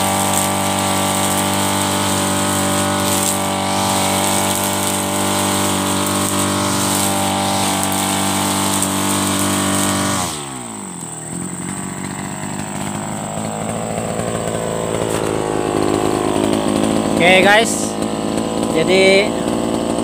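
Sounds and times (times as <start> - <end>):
brush cutter engine: 0.0 - 20.0.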